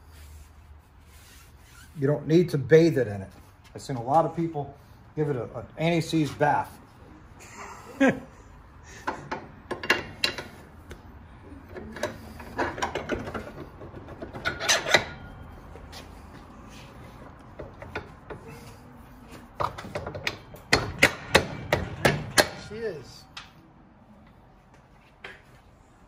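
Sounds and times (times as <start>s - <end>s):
metal parts clicking and knocking: 11.7s - 15.3s.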